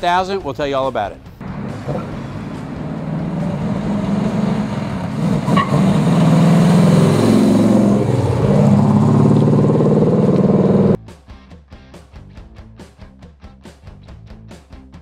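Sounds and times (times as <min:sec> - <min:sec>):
car engine accelerating past: 0:01.4 - 0:11.0.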